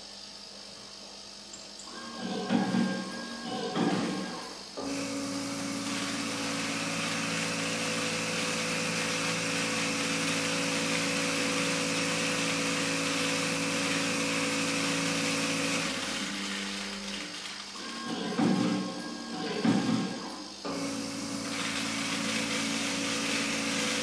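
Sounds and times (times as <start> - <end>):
seed counter humming: 4.9 - 19.3.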